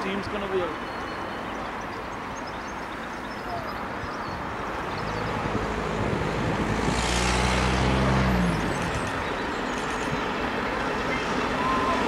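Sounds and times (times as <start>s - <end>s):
road traffic noise: 0.0s - 12.0s
vehicle engine passing: 4.9s - 9.4s.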